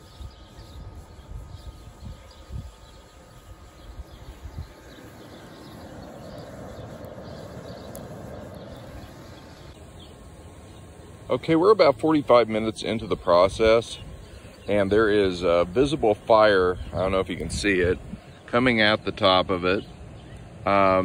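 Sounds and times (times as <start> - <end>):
faint bird chirps: 0.0 - 11.4, 19.7 - 21.0
furnace forced air rushing: 0.0 - 19.0.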